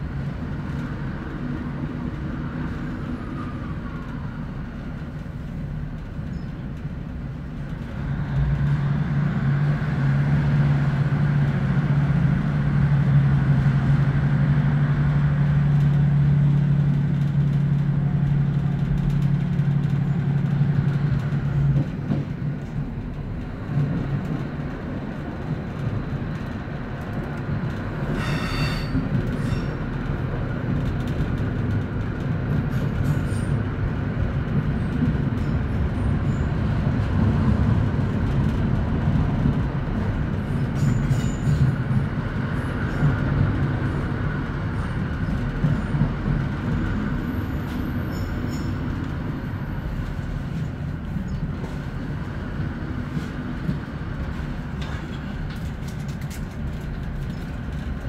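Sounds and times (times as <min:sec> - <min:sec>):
wheels rumbling on rail: 0:00.0 - 0:58.0
short high-pitched squeal: 0:28.2 - 0:29.7.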